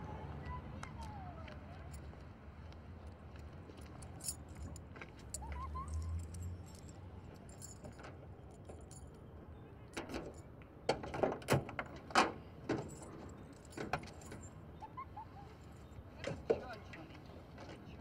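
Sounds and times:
car keys jangling: 3.8s - 9.2s, 12.7s - 14.6s.

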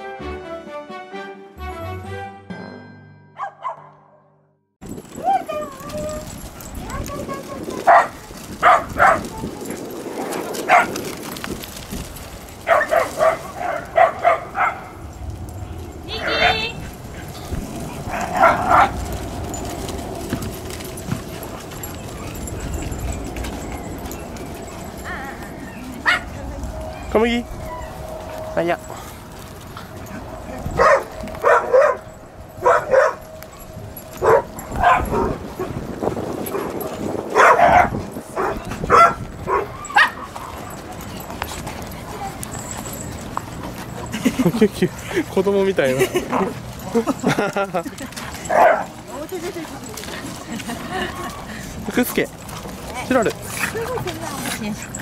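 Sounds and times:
dog barking: 3.4s - 4.3s, 7.9s - 9.3s, 10.6s - 11.0s, 12.6s - 15.0s, 18.1s - 19.0s, 26.0s - 26.3s, 30.7s - 33.2s, 34.2s - 35.4s, 37.3s - 40.7s, 48.5s - 49.0s
dogs barking: 3.4s - 4.3s, 6.4s - 11.4s, 12.6s - 15.2s, 15.9s - 44.4s, 46.0s - 51.8s.

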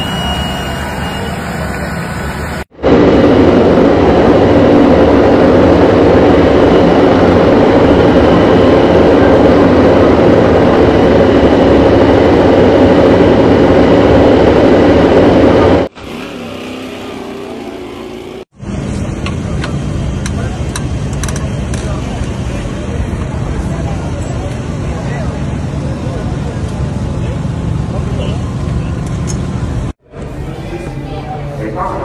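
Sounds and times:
racing motorcycle engine: 3.3s - 19.6s.

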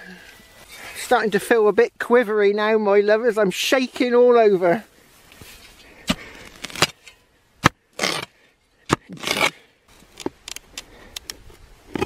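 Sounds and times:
metal spade digging into soil: 5.4s - 9.6s.

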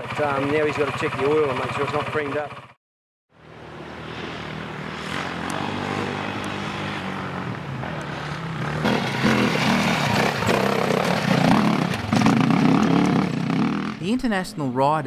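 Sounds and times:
dirt bike engines under load: 7.7s - 14.2s.

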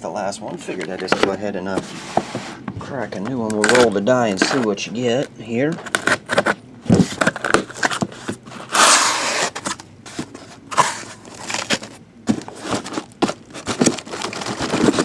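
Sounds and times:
cardboard scraping and knocking: 0.8s - 4.7s, 5.8s - 15.0s
packing tape ripping: 5.8s - 9.8s, 10.7s - 15.0s.

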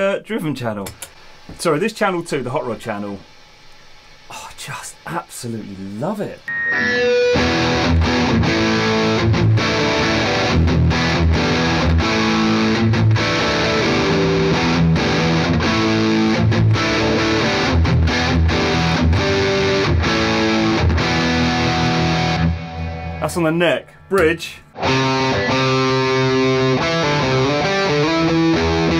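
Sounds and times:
distorted electric guitar chords: 6.5s - 28.9s.

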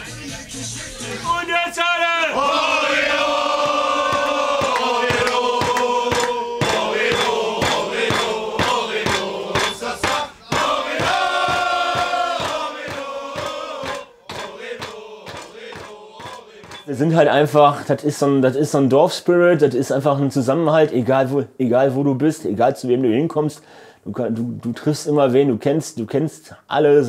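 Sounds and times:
men singing in unison: 0.0s - 17.0s
steady beat: 2.5s - 17.2s.

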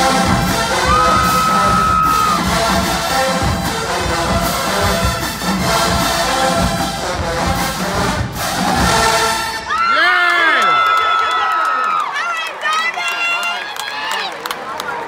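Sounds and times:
drum hits: 0.0s - 9.6s
marching band brass: 0.0s - 10.1s.

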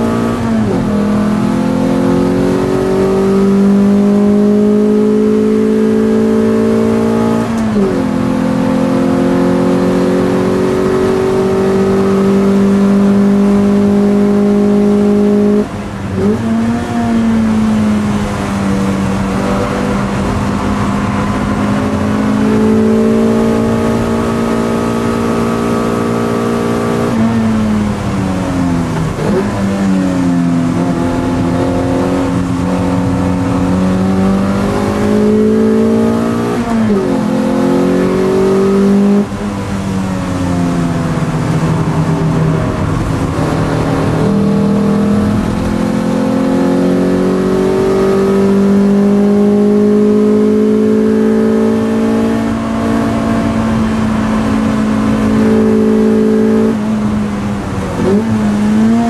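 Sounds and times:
race car engine at high revs: 0.0s - 59.0s.

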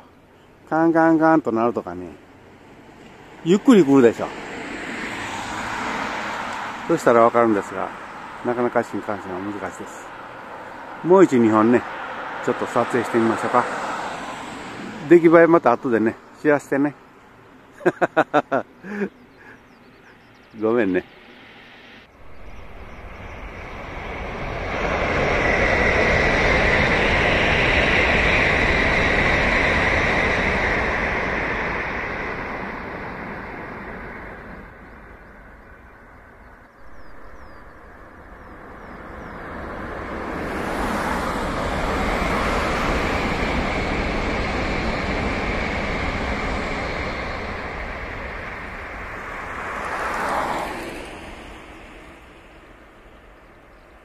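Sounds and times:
high-speed trains passing: 0.0s - 54.0s.

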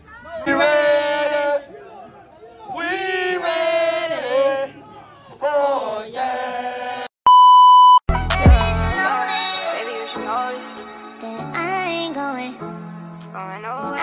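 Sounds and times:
high test-tone beep: 7.3s - 8.0s.

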